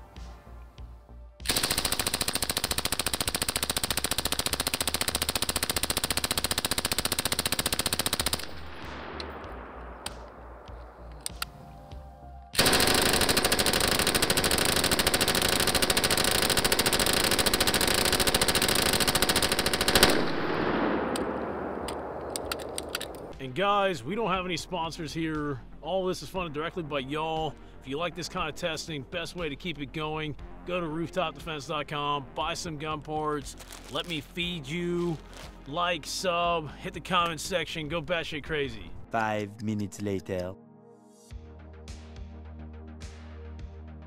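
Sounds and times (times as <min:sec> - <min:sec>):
machine gun automatic bursts: 0:01.5 - 0:08.9, 0:12.6 - 0:21.2
sharp clicks: 0:01.5 - 0:11.6, 0:21.1 - 0:23.4.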